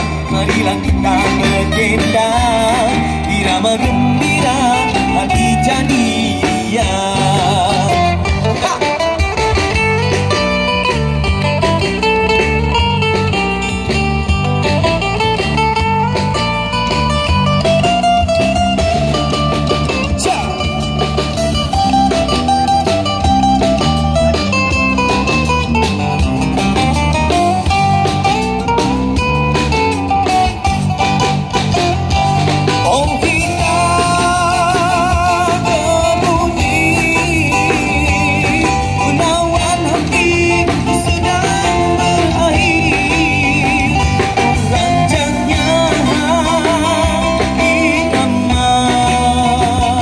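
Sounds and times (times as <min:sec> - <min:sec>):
bass: 0:00.0 - 0:50.0
drum kit beat: 0:00.0 - 0:50.0
guitar melody: 0:00.0 - 0:50.0.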